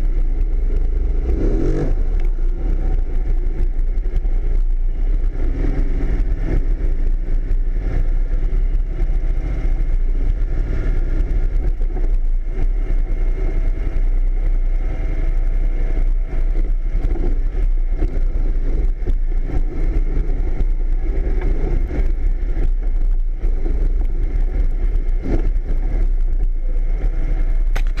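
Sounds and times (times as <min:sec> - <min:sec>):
off-road vehicle engine running: 0:00.0 - 0:28.0
knocks and rattles over rocks: 0:27.7 - 0:28.0.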